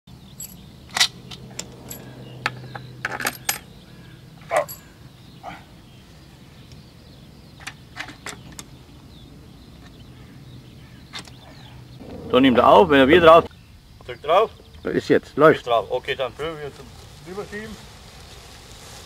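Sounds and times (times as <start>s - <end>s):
low hum: 11.6s - 13.9s.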